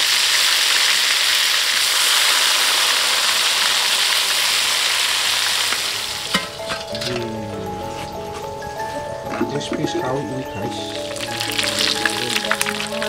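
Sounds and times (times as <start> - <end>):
chicken deep-frying in oil: 0.0 - 6.6, 10.8 - 13.0
music: 5.8 - 13.0.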